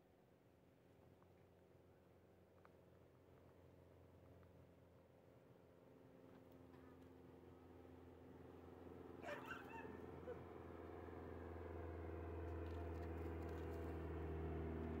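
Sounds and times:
aircraft engine drone: 7.1s - 15.0s.

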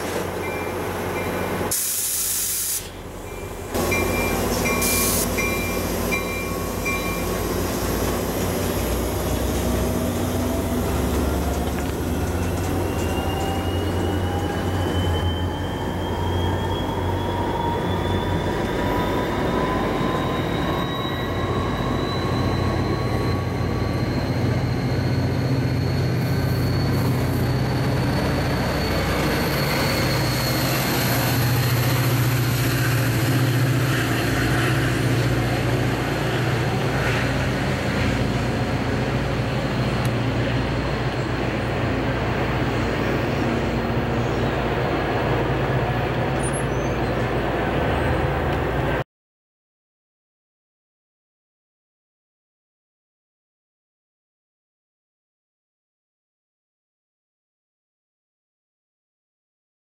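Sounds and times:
train wheel and rail noise: 0.0s - 49.0s
crossing bell dinging: 0.4s - 1.7s, 3.2s - 7.5s.

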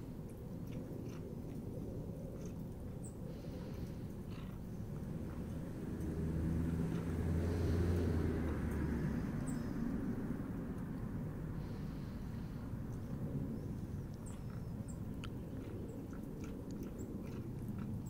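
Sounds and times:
vehicle engine passing by: 3.6s - 18.0s.

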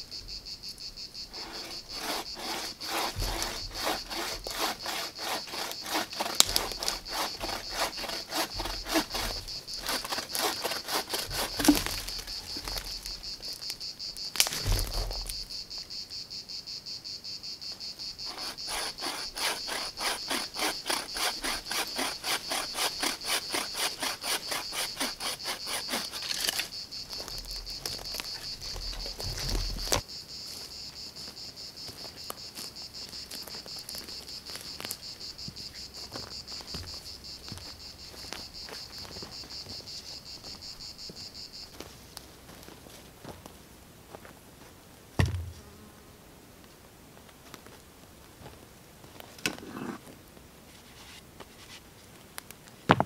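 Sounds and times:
insect chirring: 0.0s - 41.9s
hand saw cutting wood: 1.3s - 13.1s, 18.2s - 26.8s
thump: 3.1s - 3.4s, 14.6s - 15.3s, 45.2s - 45.6s.

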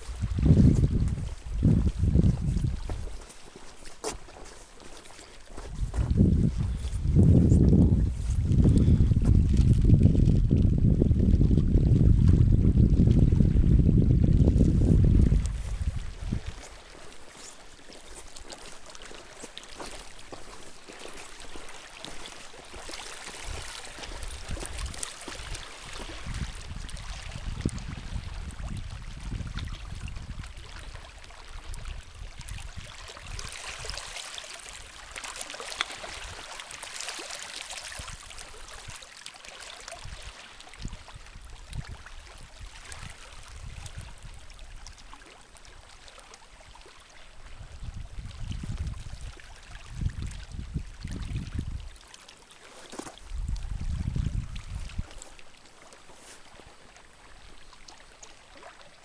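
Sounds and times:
wind buffeting microphone: 0.0s - 3.3s, 5.5s - 16.8s, 23.4s - 30.9s, 40.0s - 45.0s, 47.6s - 51.9s, 52.9s - 55.4s
small waves lapping on rocks: 0.0s - 7.0s, 14.9s - 59.0s.

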